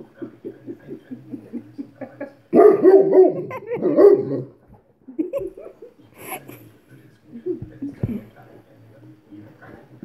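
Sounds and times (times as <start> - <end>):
dog barking: 2.5 - 4.5.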